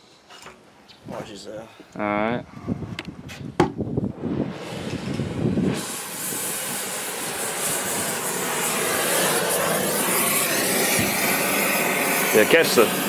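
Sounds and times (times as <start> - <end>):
torch flame hissing: 4.0 - 13.0.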